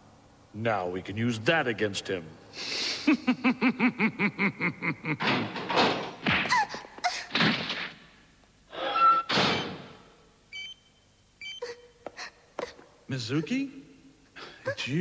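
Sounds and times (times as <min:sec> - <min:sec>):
high electronic beeps: 0:10.5 - 0:11.7.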